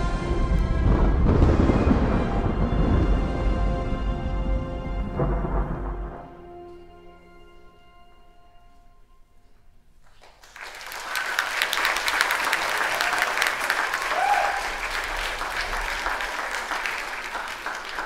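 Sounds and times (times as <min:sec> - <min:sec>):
audience applauding: 0:10.0 - 0:18.0
audience member calling out: 0:14.1 - 0:14.8.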